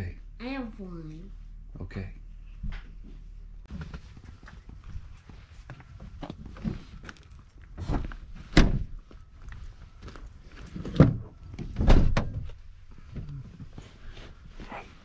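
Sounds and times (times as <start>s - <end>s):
rustling and handling noise: 3.0s - 11.8s.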